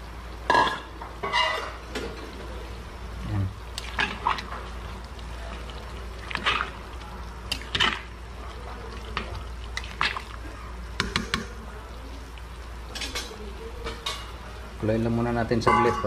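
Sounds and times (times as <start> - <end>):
liquid sloshing: 3.7 - 13.4.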